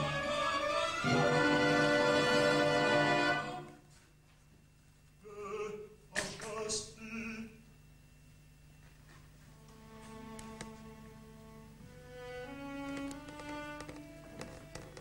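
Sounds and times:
operatic tenor singing: 0.0 - 3.7, 5.2 - 7.6.

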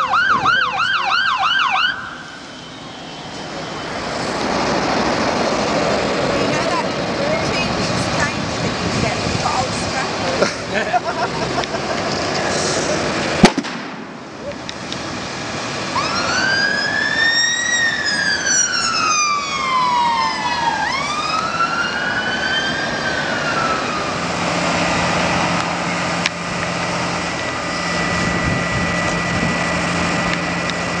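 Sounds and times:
siren wailing: 0.0 - 4.2, 15.8 - 31.0
rushing fire and hoses: 0.0 - 31.0
sharp bang: 13.4 - 14.3.

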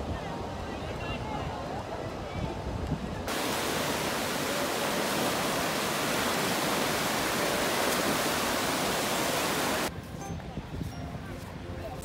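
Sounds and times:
surf breaking and washing: 3.2 - 9.9.

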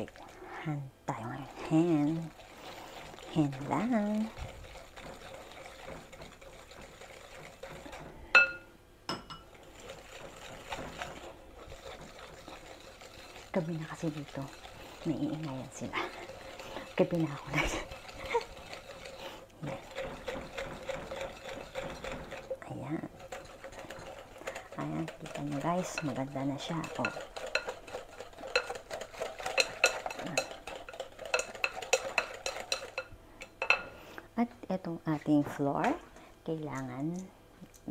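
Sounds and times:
whisk beating batter: 0.0 - 8.6, 9.4 - 34.0
whisk clinking against glass: 3.1 - 11.1, 23.2 - 33.9.

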